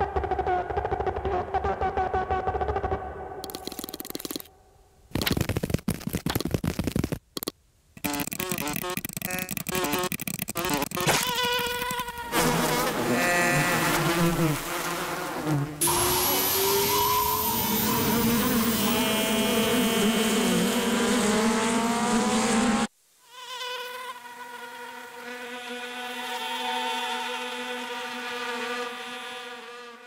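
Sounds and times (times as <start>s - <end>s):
cartoon insect wing buzzing: 8.0s - 30.0s
insect flight buzz with rising whine: 8.0s - 30.0s
squeaky wavering chirps: 15.9s - 18.7s.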